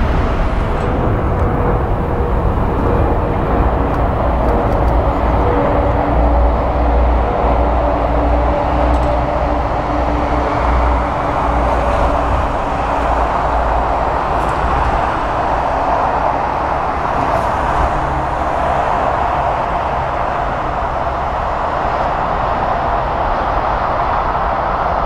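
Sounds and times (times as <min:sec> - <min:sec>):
jet engines rumbling: 0:00.0 - 0:25.0.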